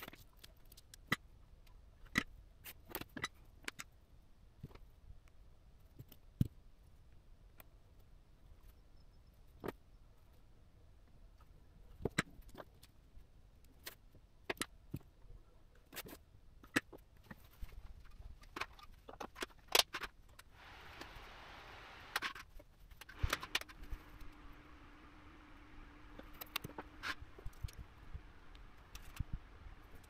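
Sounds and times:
soft hiss: 20.4 - 30.0
steady low hum: 20.5 - 22.3, 22.9 - 30.0.

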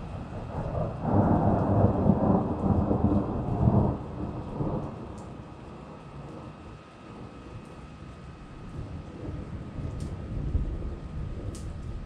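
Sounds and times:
thunder rumbling: 0.0 - 7.4
steady rain: 0.0 - 12.0.

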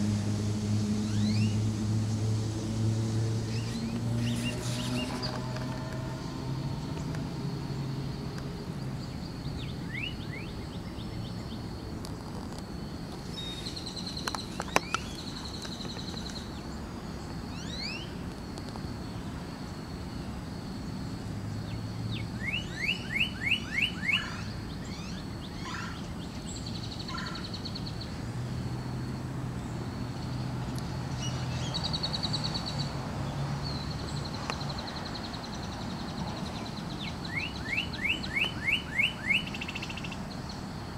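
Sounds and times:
songbirds trilling and chirping: 0.0 - 18.4, 19.0 - 40.9
steady low hum: 0.0 - 22.3.

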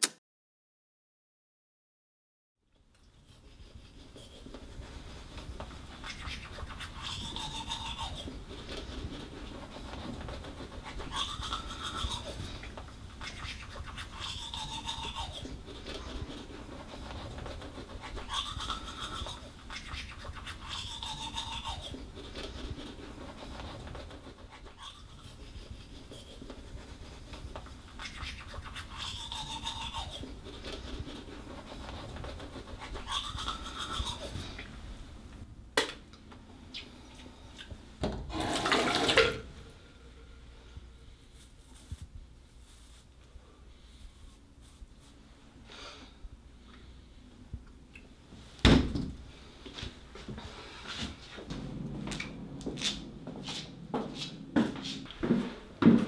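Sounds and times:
sharp click: 0.0 - 0.2
teeth being brushed: 3.2 - 34.7.

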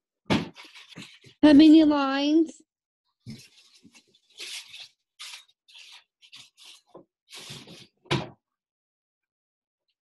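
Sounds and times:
rustling and rubbing: 0.5 - 1.5, 3.2 - 8.0.

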